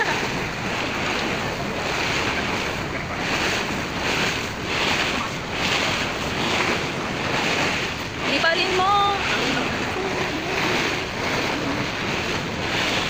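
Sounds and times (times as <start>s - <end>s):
water rushing along boat hull: 0.0s - 13.0s
wind buffeting microphone: 0.0s - 13.0s.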